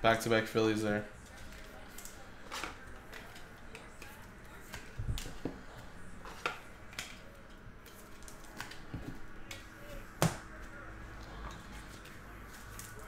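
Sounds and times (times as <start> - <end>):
cards and plastic clicking and tapping: 1.2 - 10.8.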